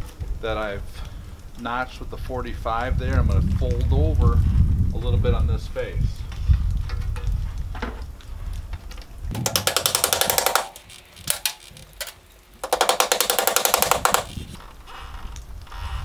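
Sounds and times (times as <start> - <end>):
hammer rattling on aluminum trim: 9.3 - 14.6.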